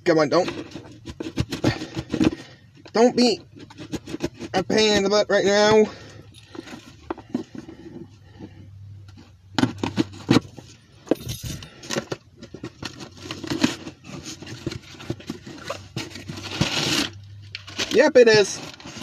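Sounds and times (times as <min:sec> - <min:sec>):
packaging crinkling and tearing: 0:12.6 - 0:19.0.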